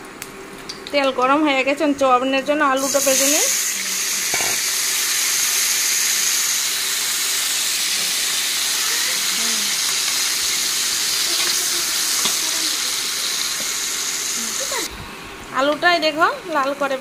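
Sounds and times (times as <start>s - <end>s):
potatoes sizzling in hot oil: 2.4s - 14.9s.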